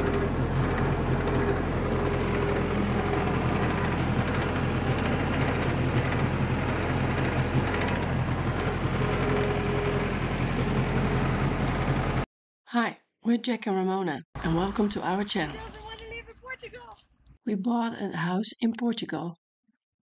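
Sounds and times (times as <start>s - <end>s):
tractor diesel engine running: 0.0s - 12.3s, 14.4s - 16.4s.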